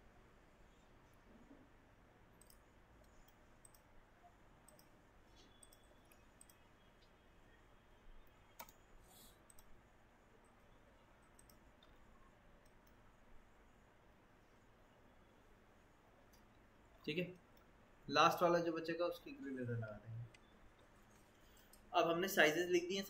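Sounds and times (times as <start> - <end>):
computer mouse clicks: 2.4 - 4.0, 4.6 - 7.2, 8.2 - 9.8, 10.4 - 13.1.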